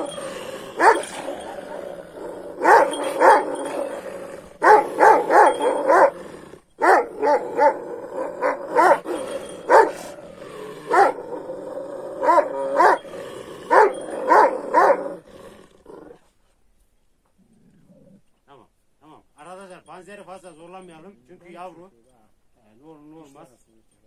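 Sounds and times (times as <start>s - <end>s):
dog barking: 0.8s - 1.8s, 2.6s - 3.8s, 4.6s - 6.2s, 6.8s - 10.2s, 10.9s - 11.2s, 12.2s - 13.0s, 13.7s - 15.1s.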